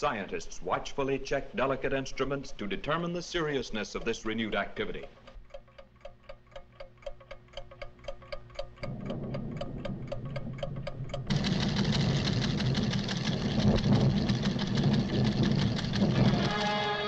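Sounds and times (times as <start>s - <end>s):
rapid mechanical ticking: 1.6s - 16.9s
loud low earth rumble: 8.8s - 16.6s.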